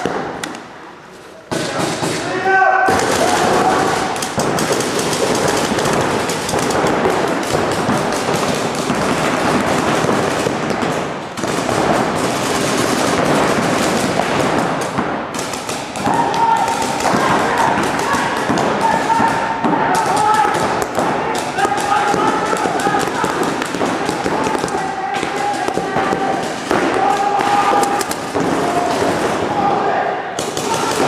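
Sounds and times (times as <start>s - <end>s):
players shouting: 1.5s - 9.6s, 15.8s - 31.0s
paintball markers firing: 2.9s - 29.5s, 30.4s - 31.0s.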